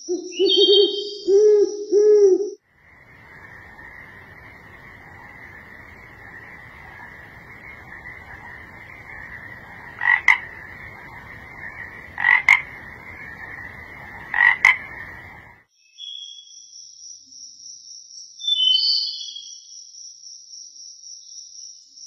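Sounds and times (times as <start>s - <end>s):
high-pitched night chorus: 2.6s - 15.6s
frog croaking double note: 9.9s - 10.6s, 11.9s - 12.9s, 14.1s - 15.0s.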